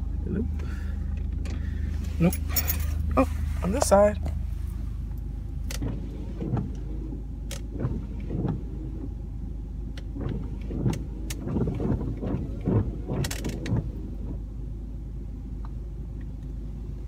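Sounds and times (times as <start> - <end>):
truck engine idling: 0.0 - 17.0
clicks and knocks in cab: 5.1 - 6.9, 7.5 - 8.6, 9.9 - 14.4.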